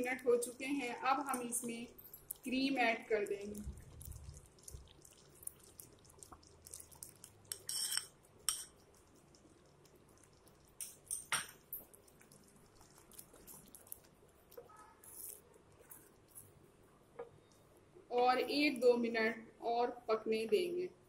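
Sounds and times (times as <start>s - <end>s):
spatula scraping pan: 7.5s - 8.7s.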